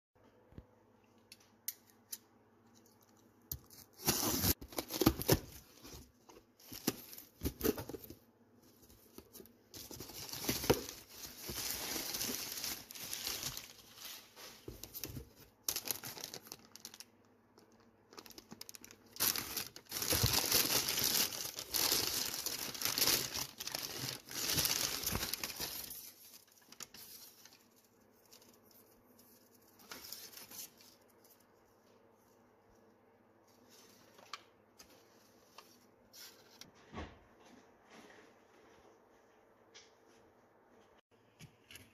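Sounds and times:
paper and plastic bag crinkling: 0:04.0 - 0:28.9.

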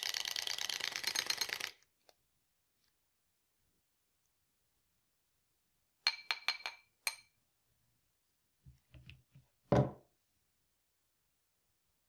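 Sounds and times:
mixer thudding on wooden table: 0:09.7 - 0:10.0.

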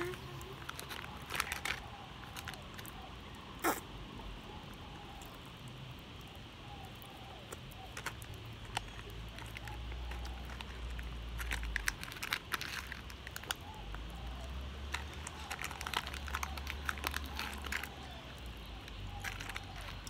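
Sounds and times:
plastic wrapper crinkling: 0:00.0 - 0:03.1, 0:07.5 - 0:14.2, 0:14.8 - 0:20.0.

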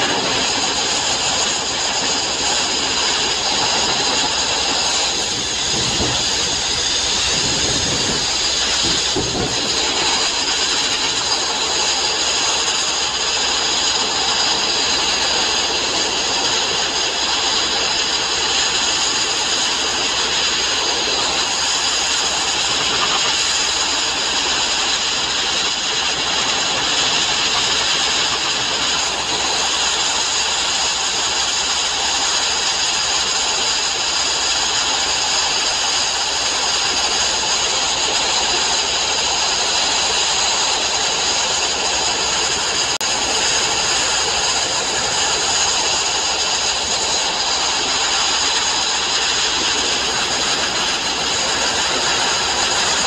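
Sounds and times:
abrasive blasting hiss: 0:00.0 - 0:53.0.

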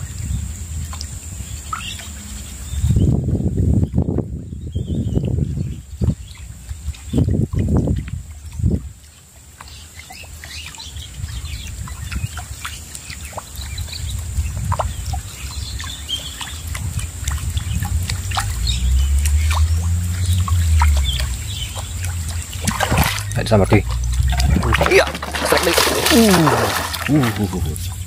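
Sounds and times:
lure splashing across water: 0:06.7 - 0:28.0
low rumble: 0:16.8 - 0:28.0.

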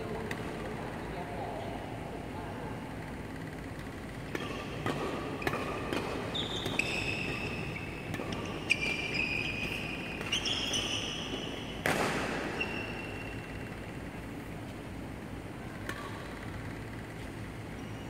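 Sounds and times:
rackets hitting shuttlecock: 0:03.2 - 0:14.8, 0:15.6 - 0:17.3
shoes squeaking on court floor: 0:03.5 - 0:18.0.

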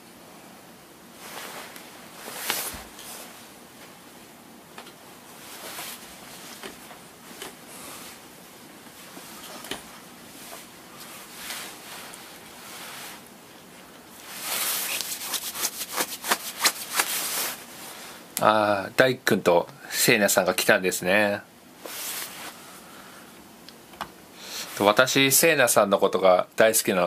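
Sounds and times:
rustling and handling noise: 0:01.0 - 0:18.4, 0:21.8 - 0:22.9.

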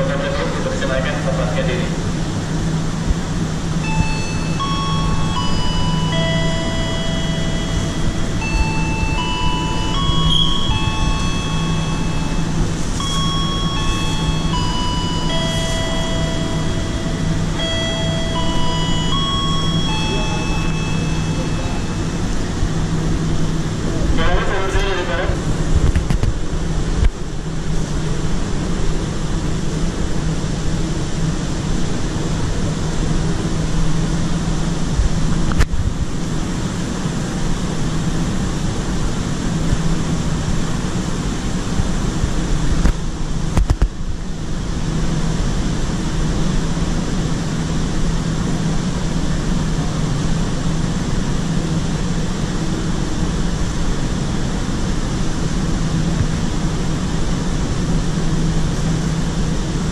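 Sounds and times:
diesel engine idling: 0:00.0 - 0:24.7.

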